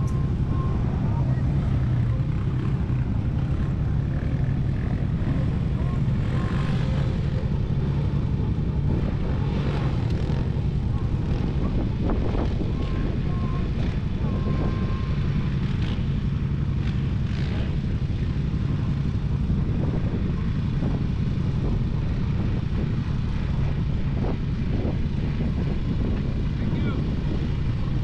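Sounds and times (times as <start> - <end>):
atv engines idling: 0.0 - 28.0.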